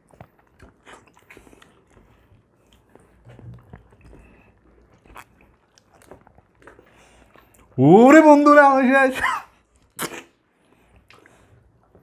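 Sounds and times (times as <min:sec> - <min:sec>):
wet chewing and biting: 0:00.0 - 0:07.8
mouth clicks and smacks: 0:02.6 - 0:07.8, 0:09.8 - 0:11.3.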